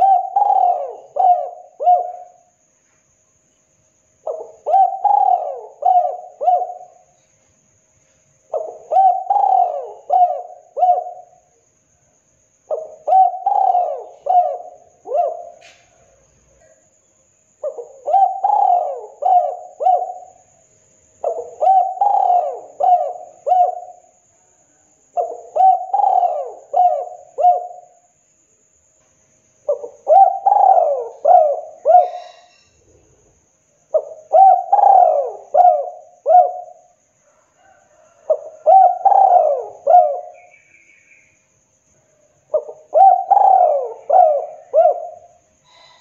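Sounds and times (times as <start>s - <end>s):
dove cooing: 0.0s - 2.5s, 4.2s - 7.2s, 8.5s - 11.4s, 12.7s - 16.8s, 17.6s - 20.4s, 21.2s - 24.1s, 25.2s - 28.0s, 29.7s - 32.7s, 33.9s - 40.5s, 42.5s - 46.0s.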